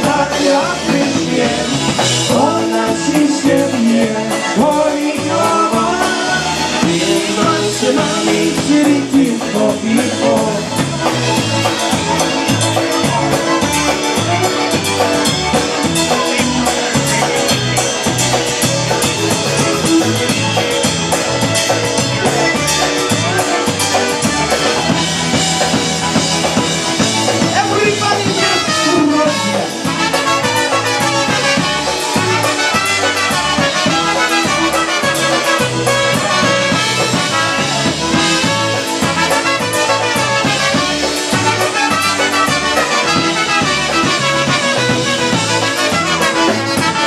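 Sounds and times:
polka band playing: 0.0s - 47.0s
trumpets playing: 26.0s - 47.0s.

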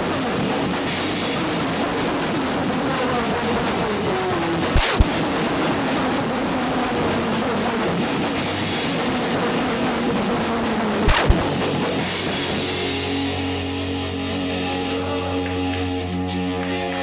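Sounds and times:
guitar amplifiers droning and feeding back: 0.0s - 17.0s
tape glitch: 1.4s - 12.8s.

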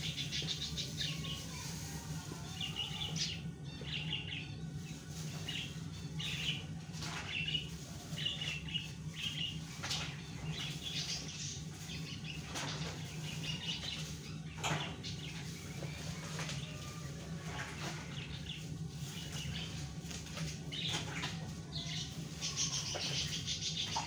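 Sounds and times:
small birds chirping: 0.0s - 24.0s
steady low hum: 0.0s - 24.0s.

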